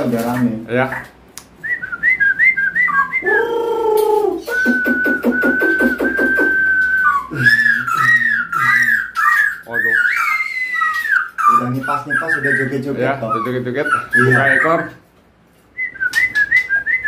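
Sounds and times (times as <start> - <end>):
bird singing whistled phrases: 1.6 - 3.8, 4.4 - 15.0, 15.8 - 17.0
rapid stuttering bird trill: 4.5 - 14.9.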